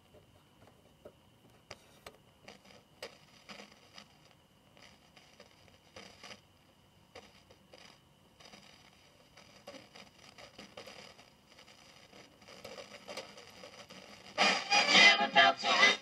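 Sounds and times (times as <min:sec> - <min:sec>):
radio tuning crackles: 0:01.8 - 0:16.0
music from radio: 0:07.2 - 0:16.0.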